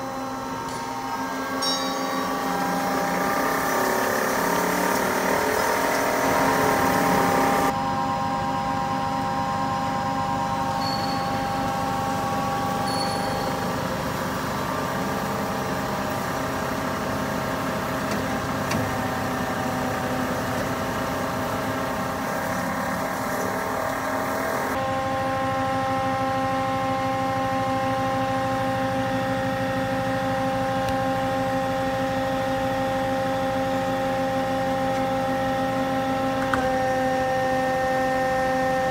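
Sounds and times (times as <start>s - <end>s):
band saw running: 0.0s - 7.7s, 18.4s - 25.5s.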